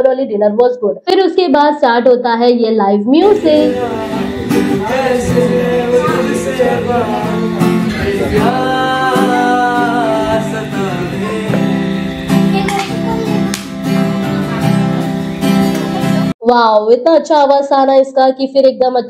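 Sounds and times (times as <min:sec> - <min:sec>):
man singing: 0:03.2 - 0:12.7
acoustic guitar strumming: 0:03.2 - 0:16.4.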